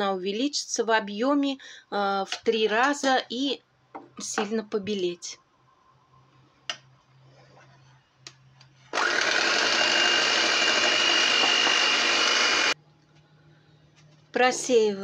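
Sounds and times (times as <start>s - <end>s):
electric hand mixer whirring: 8.9s - 12.8s.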